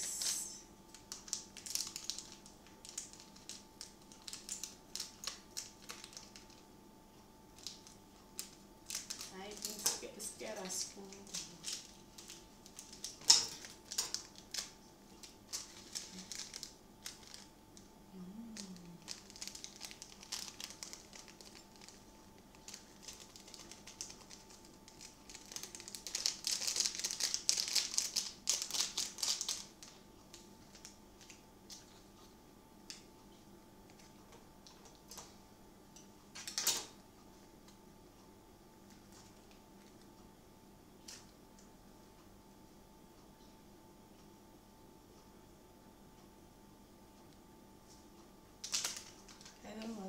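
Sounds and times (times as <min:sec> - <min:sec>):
plastic sachet tearing: 0:00.1 - 0:06.6, 0:07.6 - 0:17.9, 0:18.5 - 0:31.4, 0:48.6 - 0:49.9
plastic sachets crinkling: 0:00.1 - 0:06.7, 0:07.5 - 0:32.0, 0:36.4 - 0:36.9, 0:48.6 - 0:50.0.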